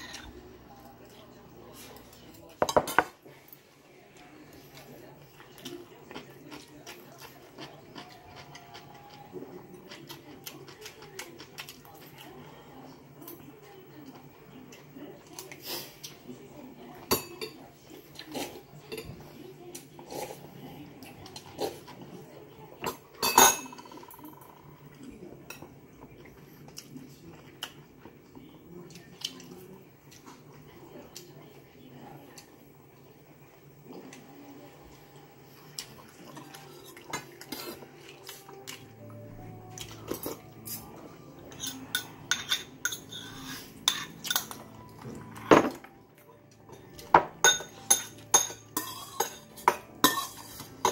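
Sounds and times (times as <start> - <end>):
utensils clinking against bowls: 22.8 - 24.6, 39.7 - 50.9
chopsticks clinking against bowl: 46.6 - 50.9.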